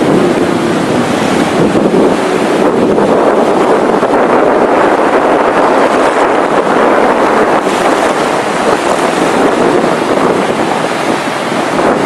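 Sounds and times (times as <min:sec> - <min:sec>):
surf breaking on shore: 0:00.0 - 0:12.0
wind on microphone: 0:00.0 - 0:12.0.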